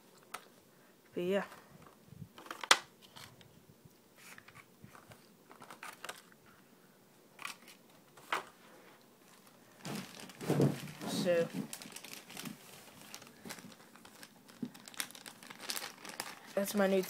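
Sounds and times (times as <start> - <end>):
plastic packaging crinkling: 4.2 - 6.4, 9.2 - 17.0.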